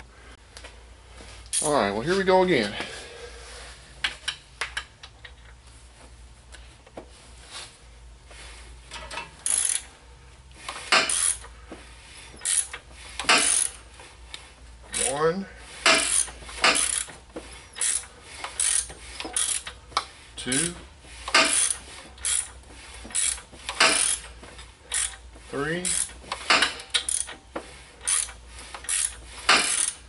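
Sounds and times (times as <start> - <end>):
ratchet wrench clicking: 9.0 - 9.9, 10.8 - 11.5, 12.4 - 13.8, 15.8 - 17.1, 17.7 - 24.3, 24.9 - 27.4, 28.0 - 30.0.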